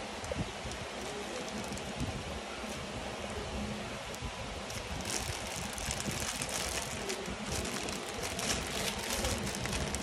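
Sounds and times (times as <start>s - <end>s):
plastic bag crinkling: 0.7s - 2.1s, 4.7s - 10.0s.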